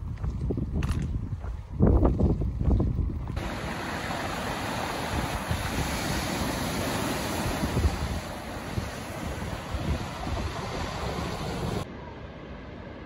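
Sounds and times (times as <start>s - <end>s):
wind buffeting microphone: 0.0s - 11.9s
surf breaking on rocks: 3.4s - 11.8s.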